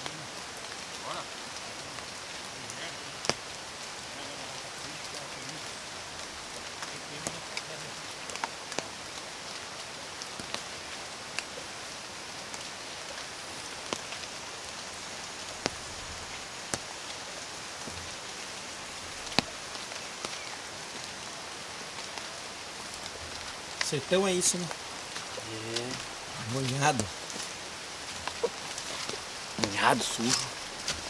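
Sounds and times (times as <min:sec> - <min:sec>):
rain on foliage: 0:00.0 - 0:31.0
raindrop taps: 0:16.7 - 0:16.9, 0:19.2 - 0:19.6, 0:23.0 - 0:27.5, 0:28.1 - 0:31.0.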